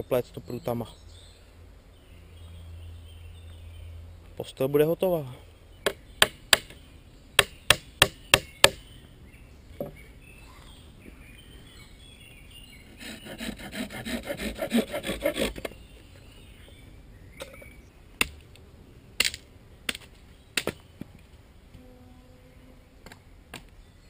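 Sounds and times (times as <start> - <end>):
sharp wooden knocks: 5.8 - 6.8, 7.4 - 8.8
hand saw cutting wooden rod: 12.9 - 15.8.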